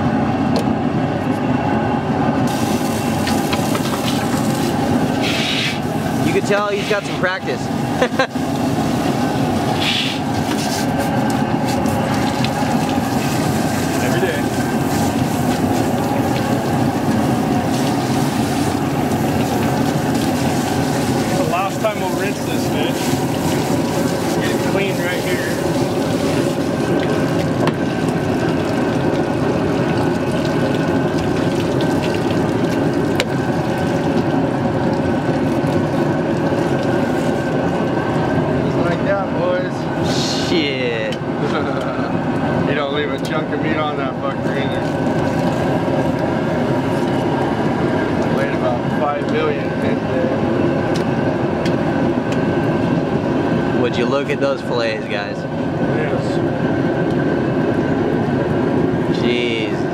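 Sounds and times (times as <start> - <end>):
water spraying on fish: 2.5 - 38.7, 43.4 - 48.9.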